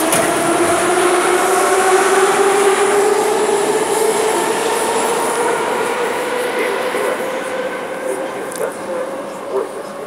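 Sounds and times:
train wheels rumbling: 0.0s - 7.2s
traction motor whine: 0.0s - 10.0s.

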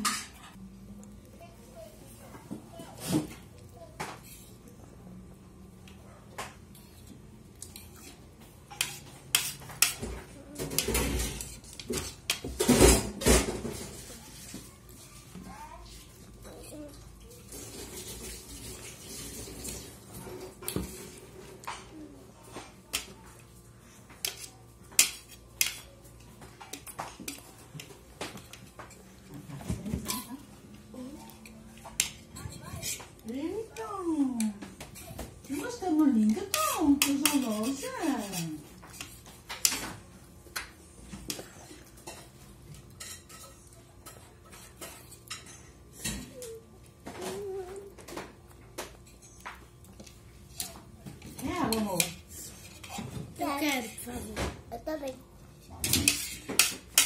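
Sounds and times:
cutlery clinking on plates: 40.6s - 46.6s, 55.8s - 57.0s.

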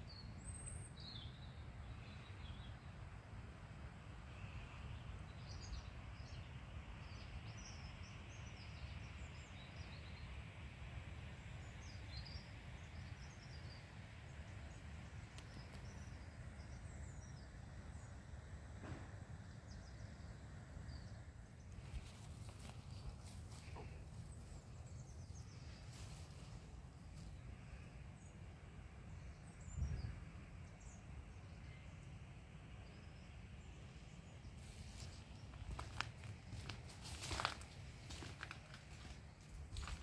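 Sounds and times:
small birds chirping: 32.9s - 40.0s.

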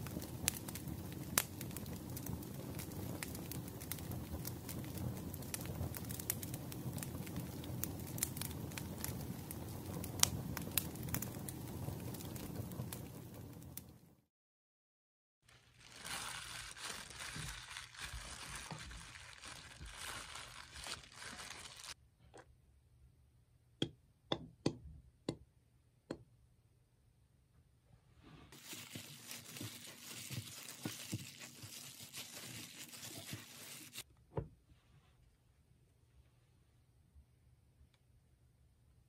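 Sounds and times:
plastic glove crinkling: 15.4s - 22.0s, 28.5s - 34.0s.

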